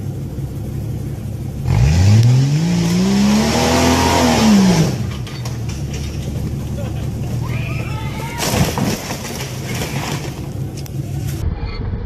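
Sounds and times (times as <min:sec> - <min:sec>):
engine revving hard: 0:01.6 - 0:05.1.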